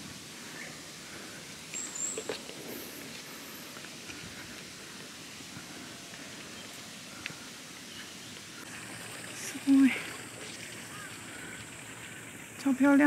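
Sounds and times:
quiet outdoor ambience: 0.0s - 13.0s
footsteps on paved path: 1.1s - 7.5s.

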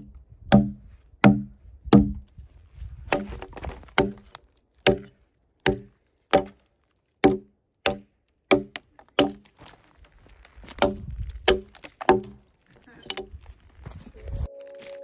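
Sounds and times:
hatchet chopping into log: 0.5s - 2.2s, 3.1s - 6.6s, 7.2s - 9.5s, 10.8s - 12.4s.

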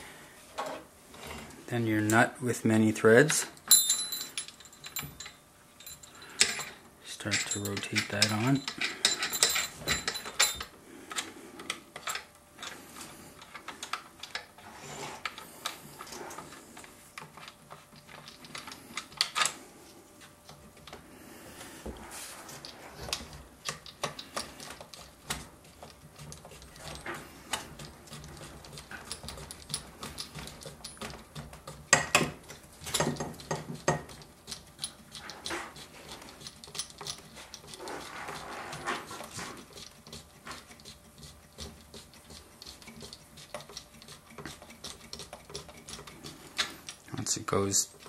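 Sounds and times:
metal nut clicking on threads: 3.6s - 11.2s.

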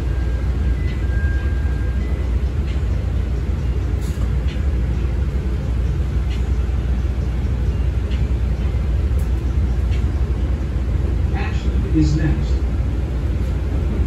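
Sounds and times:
train rumbling along track: 0.0s - 14.0s.

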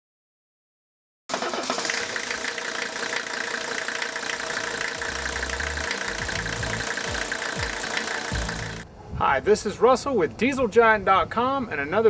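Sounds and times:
diesel engine idling: 1.3s - 8.8s.

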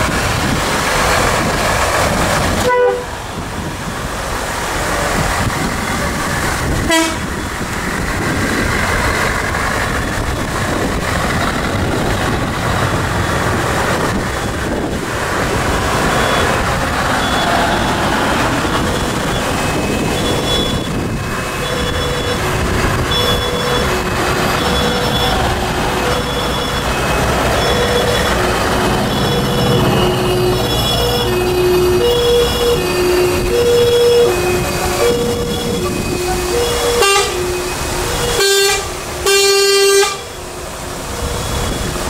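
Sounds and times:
trucks driving past: 0.0s - 42.0s
fire engine two-tone siren: 2.6s - 3.1s, 6.9s - 7.2s, 16.0s - 40.5s.

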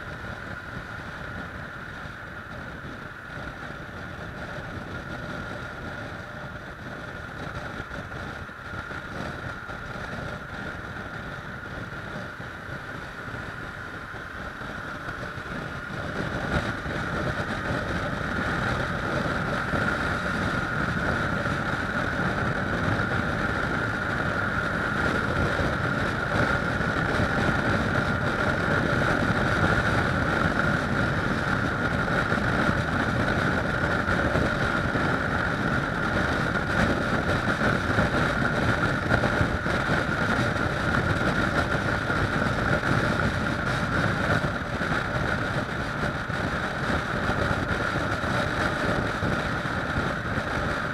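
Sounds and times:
motorcycle engine running: 0.0s - 50.9s
wind rushing over microphone: 0.0s - 50.9s.

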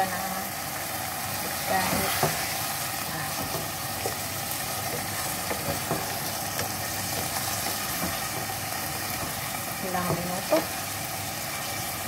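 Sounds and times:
food sizzling in a pot: 0.0s - 12.0s
wooden spatula tapping pot: 3.3s - 10.8s.

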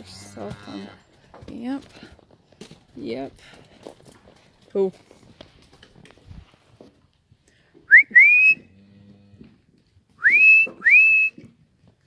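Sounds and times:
person whistling: 7.9s - 8.6s, 10.2s - 11.4s.

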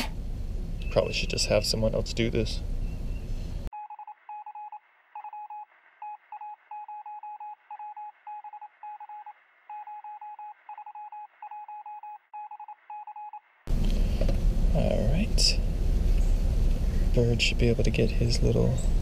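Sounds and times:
electronic censor bleeps: 3.8s - 13.4s.

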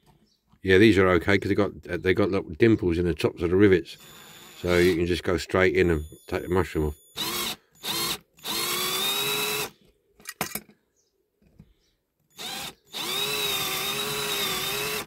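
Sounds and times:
cordless drill whining: 3.9s - 5.2s, 6.0s - 9.8s, 12.3s - 15.0s.

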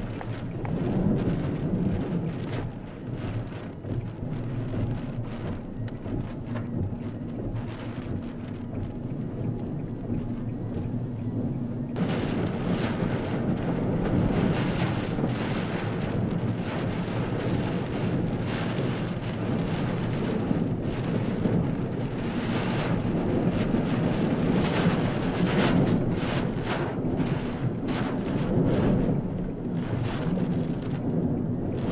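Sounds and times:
driving rain: 0.0s - 31.9s
wind buffeting microphone: 0.0s - 31.9s.

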